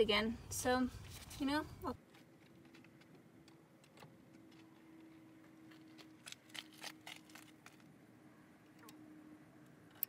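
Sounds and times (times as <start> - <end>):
quiet clicks and rustles: 1.0 - 7.9.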